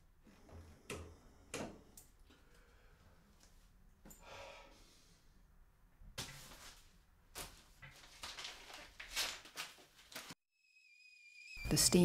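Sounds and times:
paper leaflet rustling: 6.2s - 10.4s.

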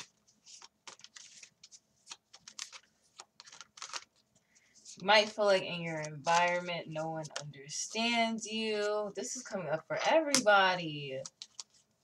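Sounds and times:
cards being shuffled: 0.0s - 8.1s, 11.2s - 12.0s.

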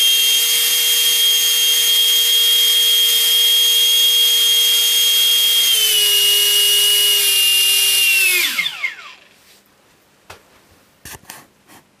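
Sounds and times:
electric fan whining: 0.0s - 9.4s.

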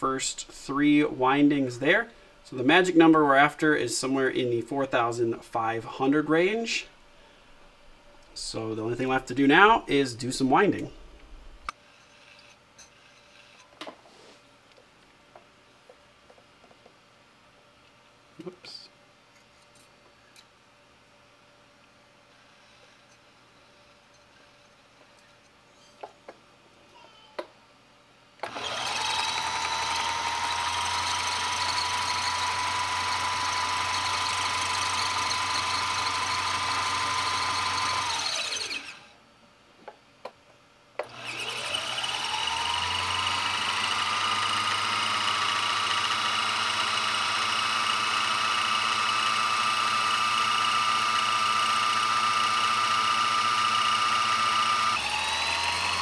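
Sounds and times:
coil winder motor whining: 28.4s - 39.2s, 41.0s - 56.0s.

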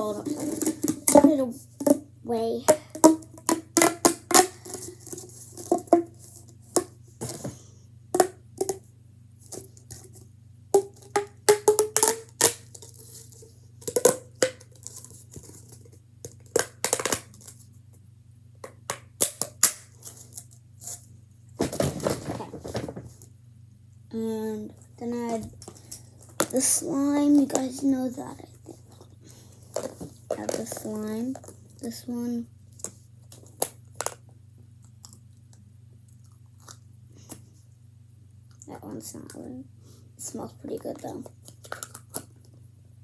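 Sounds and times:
plastic pop tube clicking: 2.7s - 6.1s, 10.8s - 12.9s, 13.8s - 15.0s.

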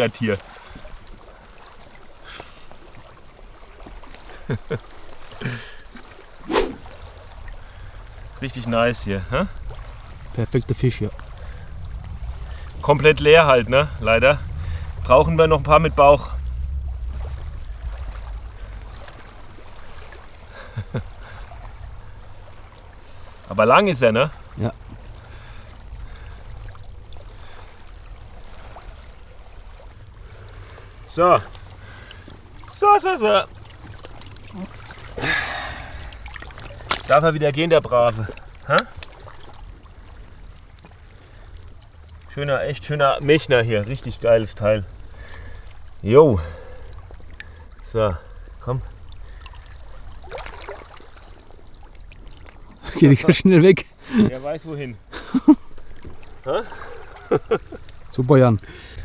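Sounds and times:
lake water lapping: 0.0s - 59.0s
small splashes: 0.4s - 8.2s, 16.2s - 53.0s, 55.1s - 59.0s
short rush of noise: 6.4s - 6.9s
low rumble: 7.1s - 32.7s, 33.4s - 40.8s.

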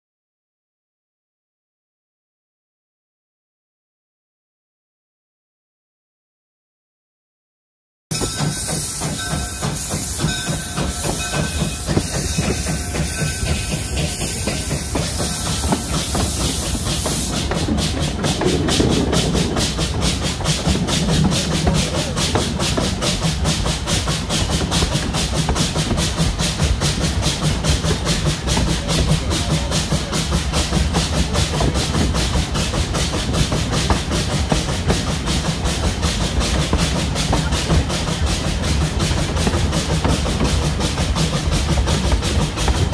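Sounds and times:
steam hissing: 8.1s - 42.9s
steam locomotive exhaust chuffs: 8.1s - 42.9s.

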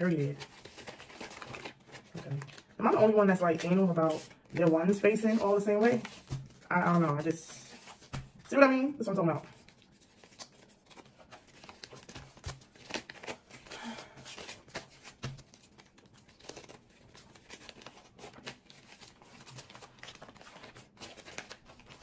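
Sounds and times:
paper bills rustling: 0.0s - 22.0s.

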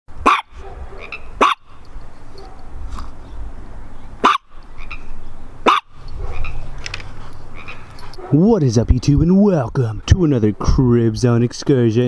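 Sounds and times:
small dog barking: 0.2s - 2.7s, 4.2s - 4.6s, 5.6s - 6.5s, 8.2s - 8.4s.

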